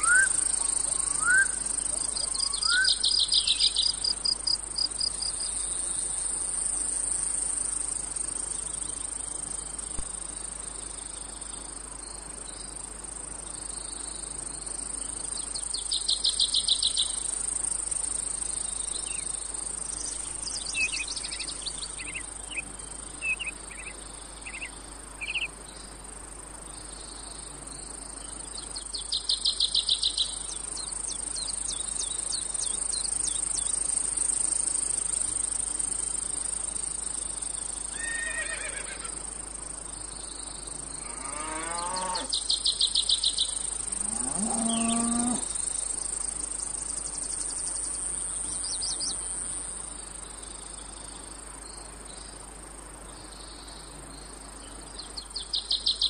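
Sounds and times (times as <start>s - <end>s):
cicada pulsing trill: 0.0s - 52.5s, 53.1s - 56.0s
insect chirps: 0.0s - 56.0s
insects droning: 0.0s - 56.0s.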